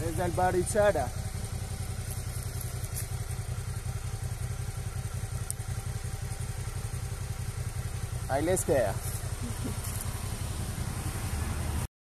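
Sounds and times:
motorcycle engine idling: 0.0s - 11.9s.

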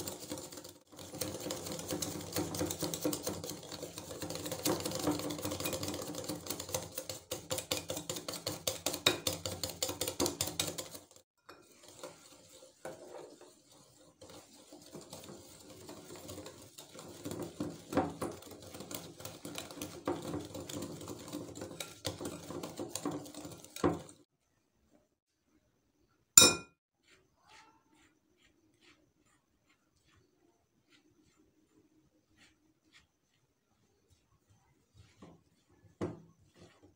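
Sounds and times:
whisk clinking against glass: 0.0s - 13.0s, 26.4s - 26.7s
whisk beating in glass bowl: 0.0s - 24.3s, 26.4s - 36.9s.

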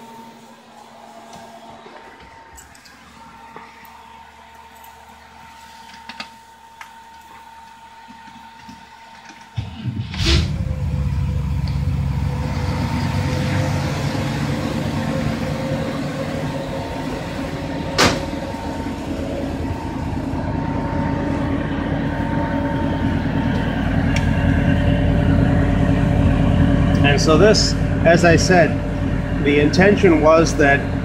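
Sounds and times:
vacuum blower high tone: 0.0s - 31.0s
car engine idling: 9.6s - 31.0s.

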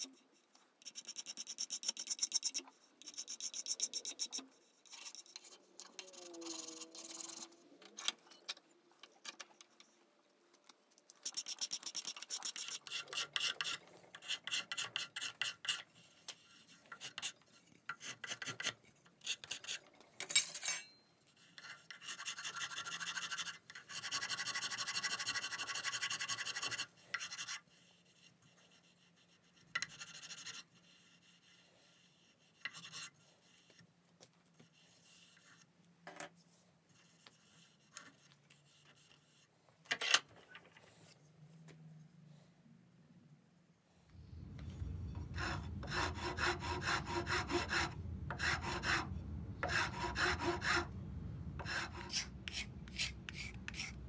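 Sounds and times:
file scratching wood: 0.8s - 7.5s, 11.2s - 19.9s, 21.6s - 27.6s, 45.2s - 51.0s, 51.6s - 54.0s
scraper scraping wood: 44.5s - 51.0s, 51.6s - 54.0s.

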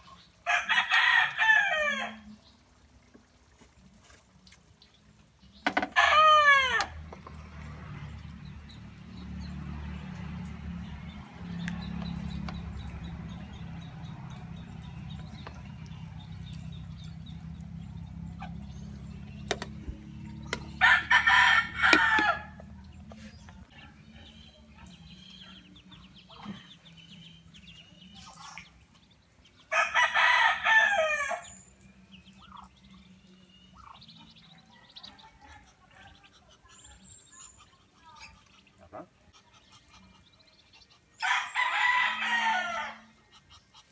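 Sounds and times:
rooster crowing: 0.5s - 2.3s, 20.8s - 22.6s, 29.7s - 31.5s, 41.2s - 43.1s.

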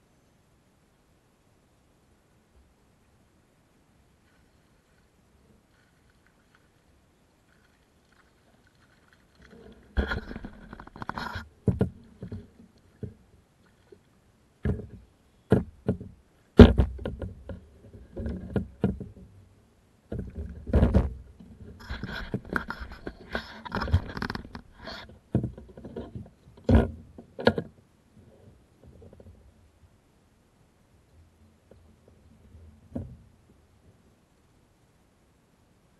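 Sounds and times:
fish splashing beside kayak: 4.2s - 15.0s.

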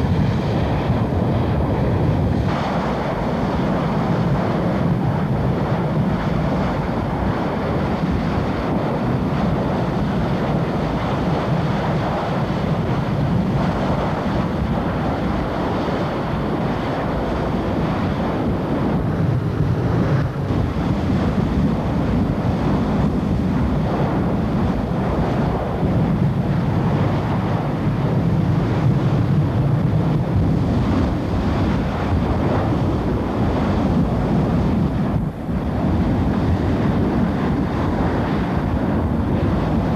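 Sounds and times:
rushing roar of burning well: 0.0s - 39.9s
fire hoses spraying water: 2.1s - 8.4s.

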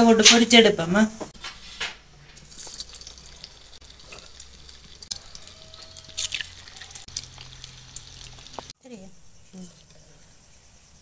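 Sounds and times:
oil spitting: 2.4s - 8.7s
hot oil sizzling and crackling: 2.4s - 11.0s.

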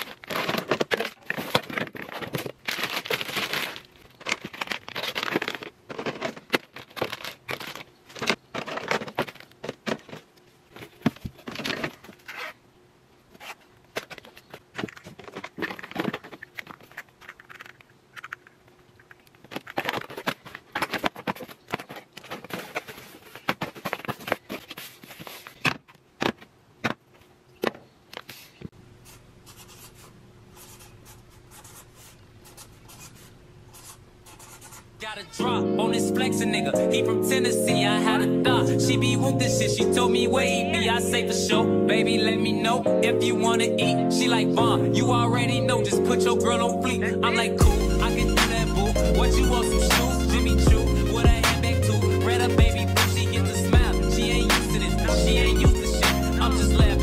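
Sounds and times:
plastic bottles knocking and crinkling: 0.0s - 12.4s, 13.8s - 27.9s.

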